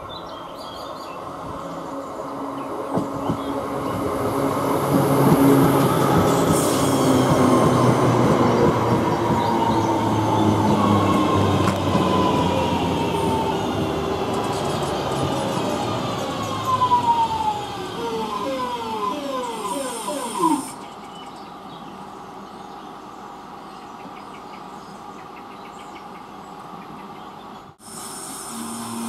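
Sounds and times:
train steady hum: 0:00.0 - 0:29.0
train running rumble: 0:01.2 - 0:20.9.

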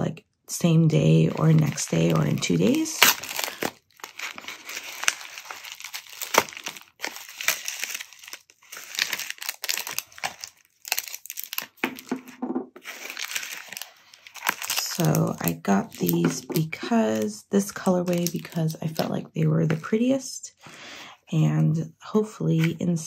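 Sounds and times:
plastic sleeves rustling: 0:00.6 - 0:20.2, 0:22.5 - 0:23.0
padded mailer tearing and crinkling: 0:01.2 - 0:19.1.

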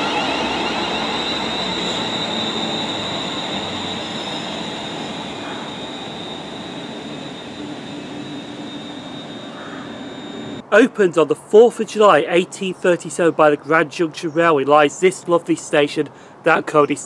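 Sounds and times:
electric train whine: 0:00.0 - 0:10.6
train wheels on rails: 0:00.0 - 0:10.6.

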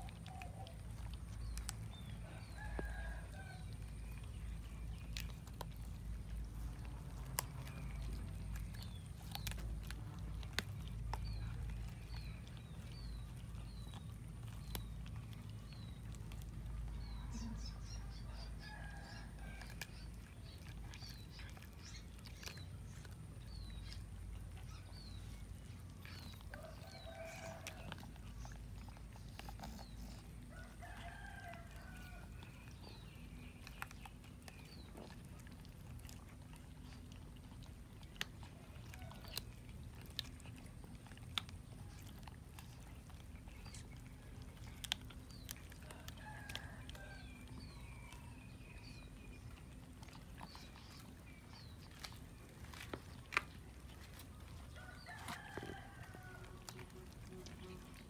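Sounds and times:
cats chewing and tearing meat: 0:00.0 - 0:58.0
rooster crowing: 0:54.8 - 0:56.6.

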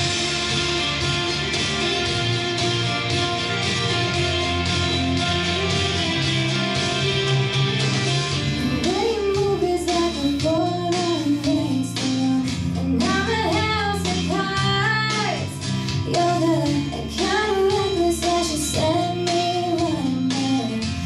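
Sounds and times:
steady bass: 0:00.0 - 0:21.0
strummed guitar: 0:00.0 - 0:21.0
girl singing into microphone: 0:08.5 - 0:21.0.

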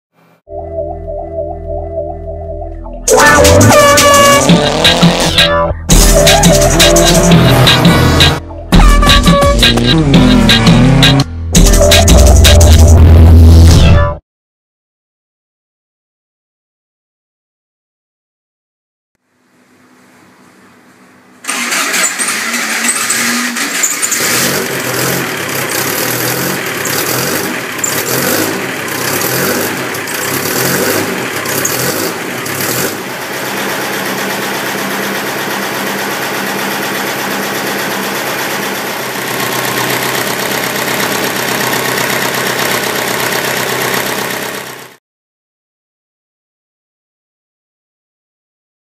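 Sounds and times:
car engine starting and revving: 0:03.2 - 0:08.4, 0:09.6 - 0:11.3, 0:21.4 - 0:45.0.

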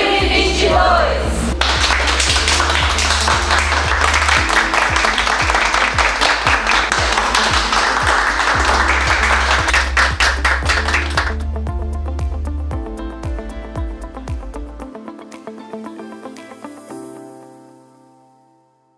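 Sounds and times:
music with steady beat: 0:00.0 - 0:17.5
people clapping hands: 0:01.5 - 0:11.6.

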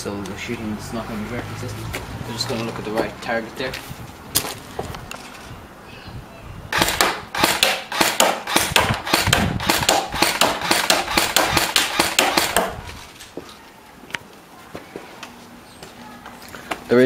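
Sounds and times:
airsoft rifle shots: 0:06.7 - 0:12.8.

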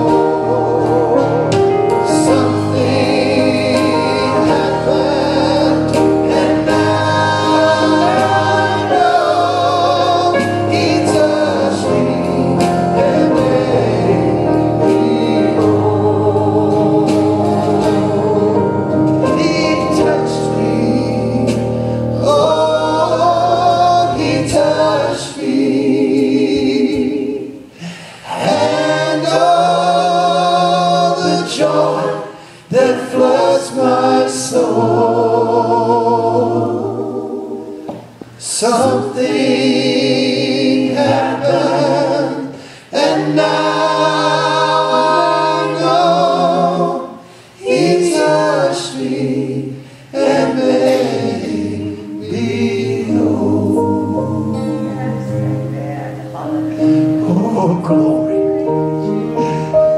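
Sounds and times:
voices singing worship song: 0:00.0 - 0:59.9
low sustained keyboard notes: 0:52.9 - 0:59.9.

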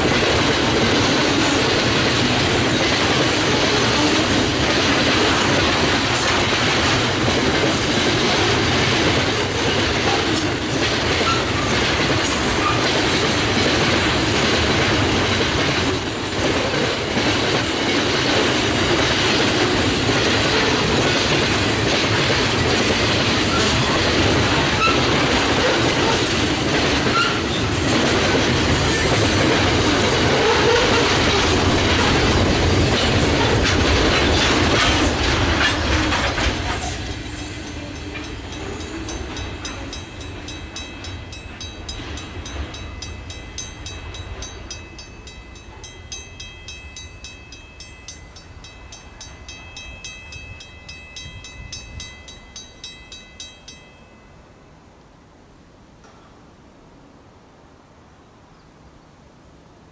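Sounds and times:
freight train wheels clacking: 0:00.0 - 0:54.0
mechanical warning bell ringing: 0:37.2 - 0:54.6.

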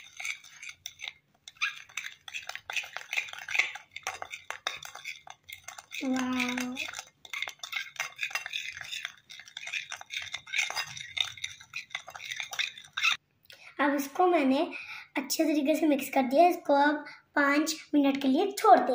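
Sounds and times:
metal spoon scraping a plate: 0:00.0 - 0:13.2.

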